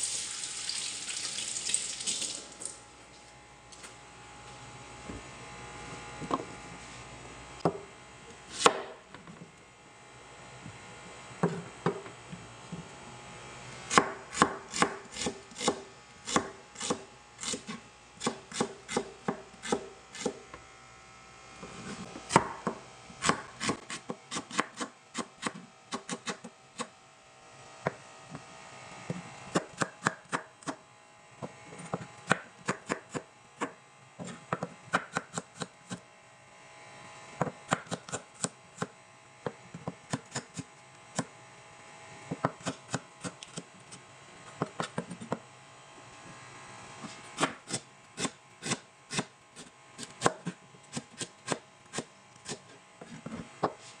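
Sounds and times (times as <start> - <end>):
knife chopping on plastic board: 22.3 - 26.5, 32.3 - 36.0, 37.4 - 38.9, 39.8 - 40.6, 42.3 - 43.6, 47.4 - 49.3, 50.0 - 52.7.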